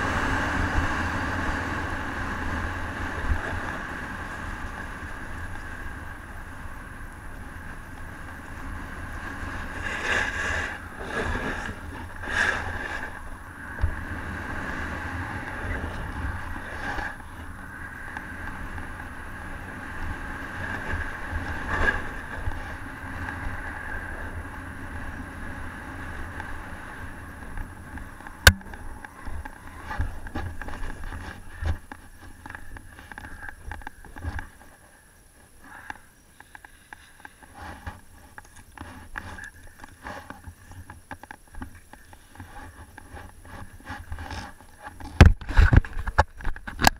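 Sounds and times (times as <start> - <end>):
snowboard sliding over snow: 0.0 - 36.0
wind rumbling on microphone: 0.0 - 46.9
crunches in snow: 8.4 - 13.3.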